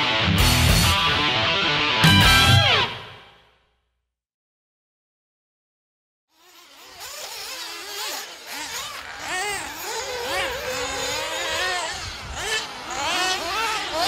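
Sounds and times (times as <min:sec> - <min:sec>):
small engine revving: 0:06.3 - 0:14.0.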